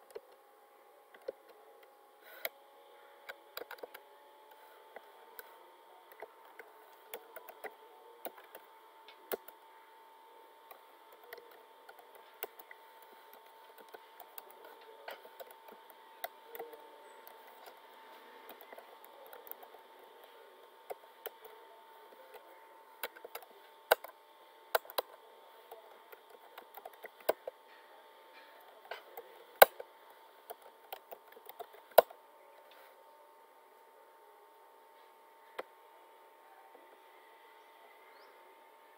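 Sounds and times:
faint hum: 0.0s - 38.9s
keyboard typing: 3.2s - 4.0s, 6.1s - 9.6s, 10.7s - 27.6s, 28.3s - 32.2s.

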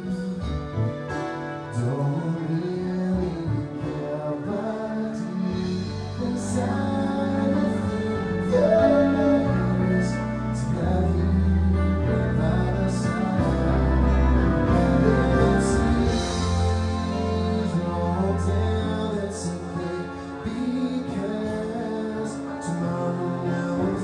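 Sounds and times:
live band playing slow song: 0.0s - 24.0s
person singing: 0.0s - 24.0s.

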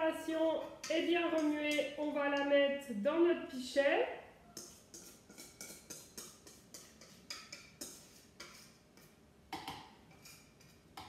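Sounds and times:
whisk tapping a metal bowl: 0.5s - 2.5s, 4.6s - 11.0s.

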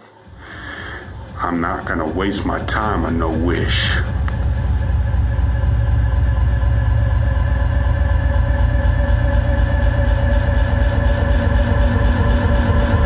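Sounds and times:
low rumbling drone: 0.0s - 13.0s
steady tones: 0.0s - 13.0s.

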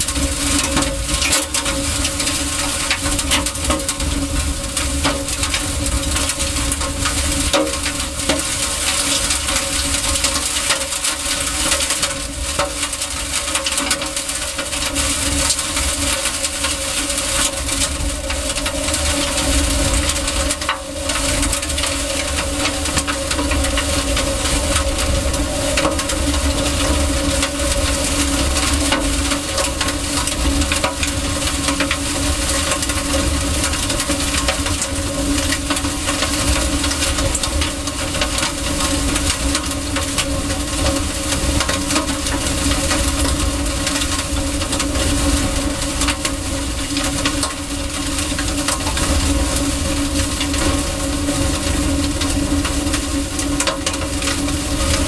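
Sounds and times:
strong wind buffeting microphone: 17.0s - 55.0s.

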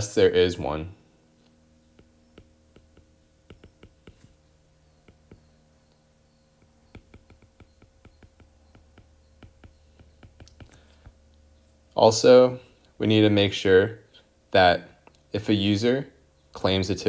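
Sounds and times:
faint steady hum: 0.0s - 17.0s
stylus tapping on glass screen: 1.8s - 11.2s.

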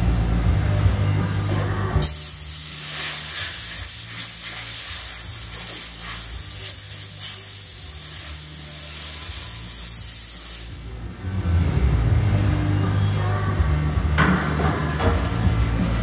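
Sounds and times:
compressed air hissing: 2.0s - 10.8s.

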